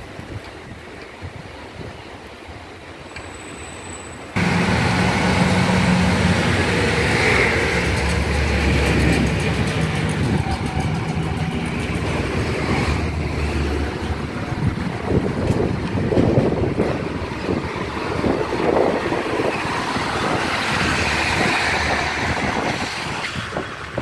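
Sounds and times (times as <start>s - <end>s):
road traffic: 0.1s - 24.0s
vehicle engine humming: 4.4s - 22.8s.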